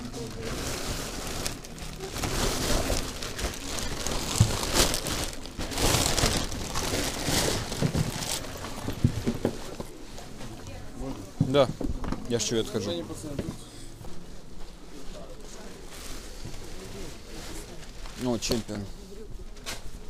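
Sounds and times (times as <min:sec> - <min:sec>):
plastic bags crinkling: 0:00.2 - 0:09.8.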